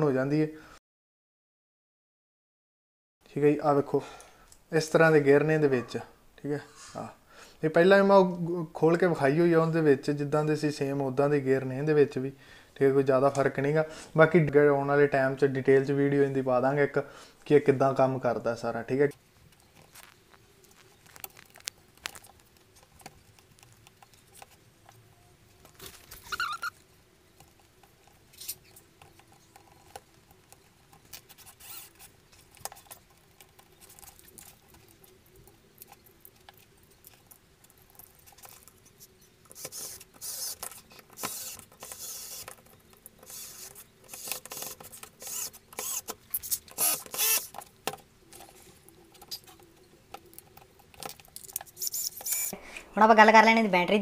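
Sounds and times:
rustling: 0:19.0 - 0:52.9
plastic parts clicking and scraping: 0:19.1 - 0:52.6.

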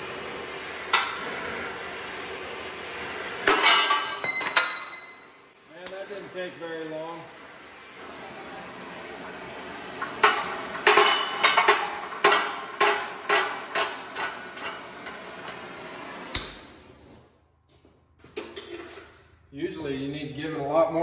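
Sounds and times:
torch hissing: 0:00.0 - 0:17.2
torch going out with a pop: 0:00.7 - 0:05.0, 0:09.9 - 0:16.9.

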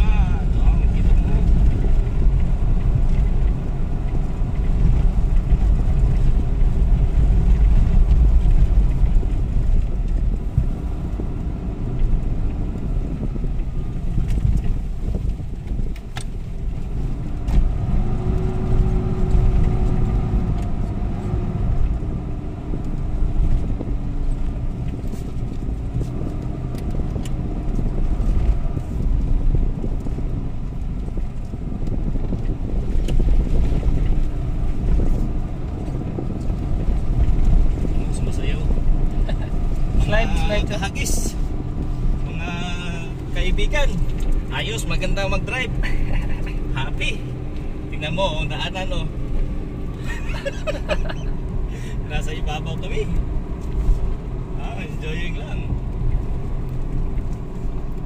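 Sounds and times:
vehicle engine and tyre rumble: 0:00.0 - 0:58.0.

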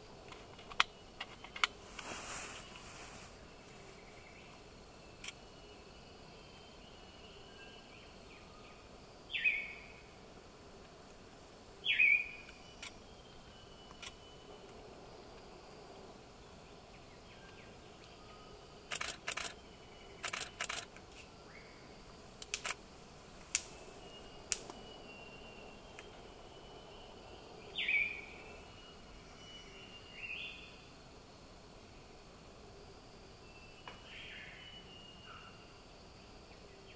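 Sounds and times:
faint insects and birds: 0:00.0 - 0:36.9
sharp clicks: 0:18.9 - 0:19.6, 0:20.2 - 0:21.0, 0:22.4 - 0:22.8.

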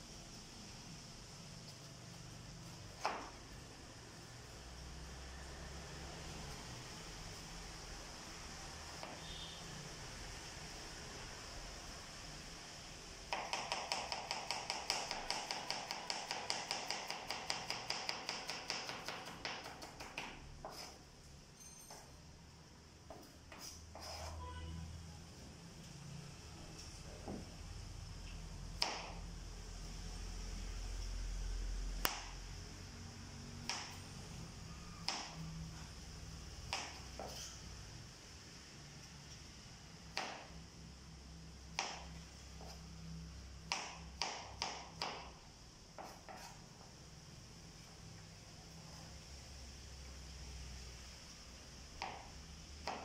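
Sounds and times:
knife chopping on plastic board: 0:13.3 - 0:21.0, 0:41.8 - 0:42.0, 0:46.0 - 0:46.6, 0:52.0 - 0:53.0
knife cutting onto cutting board: 0:23.5 - 0:24.4.

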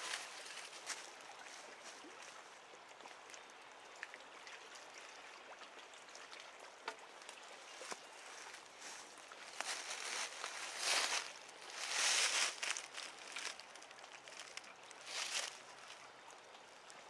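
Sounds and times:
creek water lapping at bank: 0:00.0 - 0:17.0.

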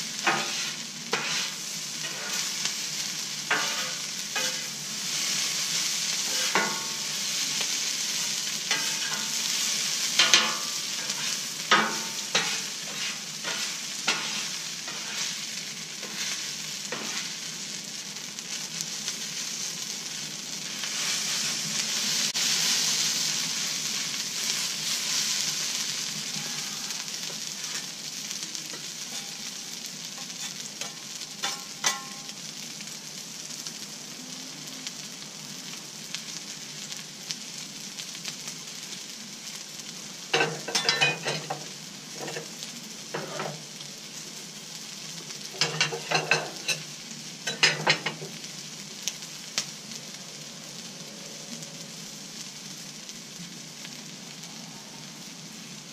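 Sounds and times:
rice sizzling on a griddle: 0:00.0 - 0:55.9
metal spatulas scraping and clacking: 0:00.2 - 0:02.5, 0:03.5 - 0:04.7, 0:06.3 - 0:06.9, 0:08.7 - 0:09.4, 0:10.2 - 0:15.3, 0:16.0 - 0:17.3, 0:30.2 - 0:32.3, 0:40.4 - 0:41.6, 0:42.2 - 0:42.5, 0:43.2 - 0:43.6, 0:45.6 - 0:46.8, 0:47.5 - 0:48.2.

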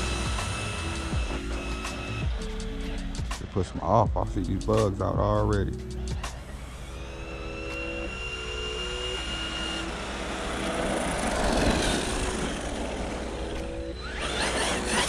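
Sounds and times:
electric motor whine: 0:00.0 - 0:03.5, 0:05.8 - 0:15.0
toy truck rushing over road: 0:06.3 - 0:15.0.

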